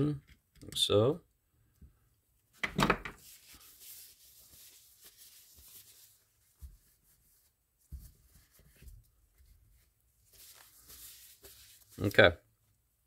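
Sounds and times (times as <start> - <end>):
paper towel rubbing metal: 3.2 - 12.2.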